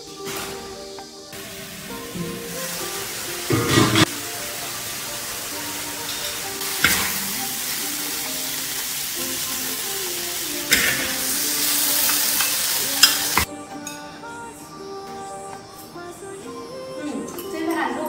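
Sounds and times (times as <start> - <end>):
beans sizzling in a wok: 0.0 - 13.5.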